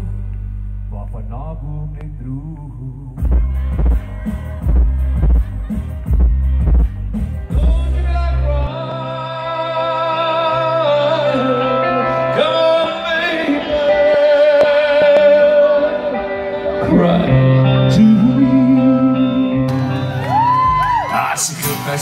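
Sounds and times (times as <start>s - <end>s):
instrumental backing music: 0.0s - 22.0s
man singing long held notes: 7.5s - 19.8s.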